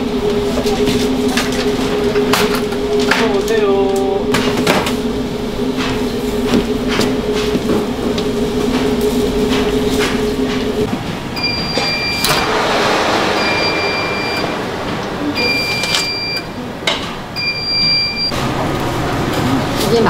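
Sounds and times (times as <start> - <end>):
oven hum: 0.0 - 20.0
oven alarm two-tone beeps: 11.4 - 12.5, 13.4 - 14.5, 15.4 - 16.5, 17.4 - 18.4.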